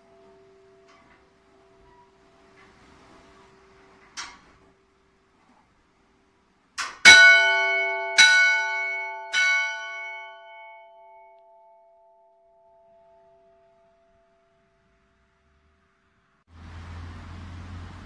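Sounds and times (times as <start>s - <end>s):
small church bell ringing: 0.0s - 5.2s, 7.0s - 15.0s.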